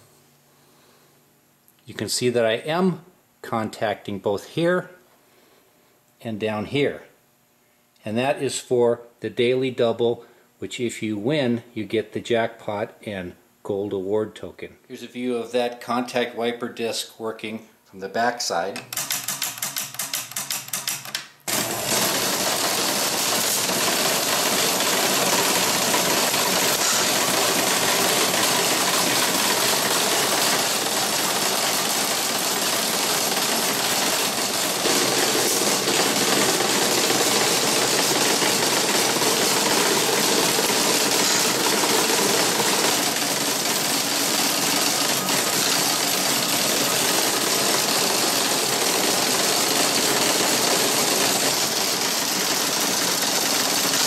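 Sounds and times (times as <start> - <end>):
mechanical clatter of gears: 18.9 - 54.0
rapid even ticking: 22.3 - 54.0.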